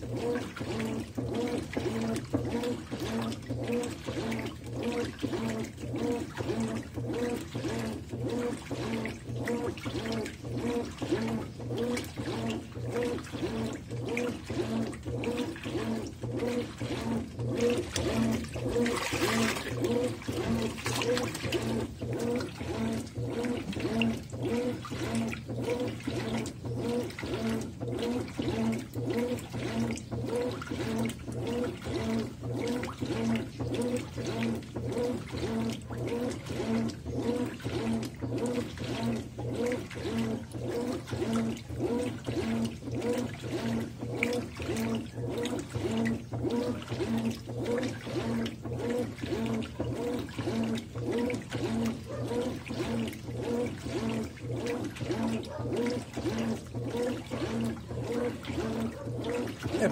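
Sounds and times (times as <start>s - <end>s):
washing machine motor humming: 0.0s - 59.9s
water swishing and sloshing: 0.0s - 59.9s
water splash: 17.8s - 22.5s.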